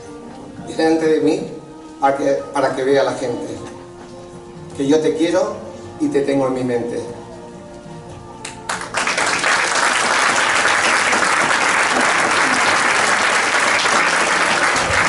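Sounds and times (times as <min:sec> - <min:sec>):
audience applauding: 0:08.4 - 0:15.0.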